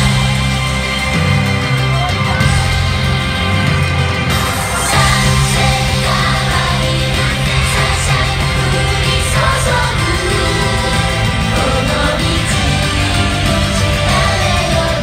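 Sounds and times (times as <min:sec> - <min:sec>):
pop backing track with beat: 0:00.0 - 0:15.0
women singing together: 0:04.7 - 0:15.0.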